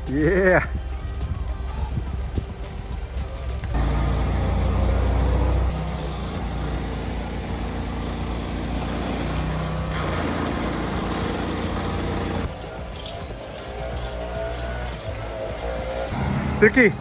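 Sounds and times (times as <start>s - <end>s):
stump grinder engine grinding: 3.6s - 16.6s.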